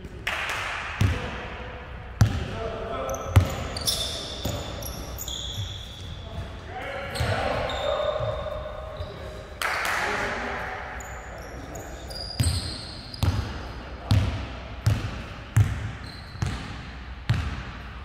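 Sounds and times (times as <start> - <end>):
basketball bouncing on wooden floor: 14.1 - 17.8.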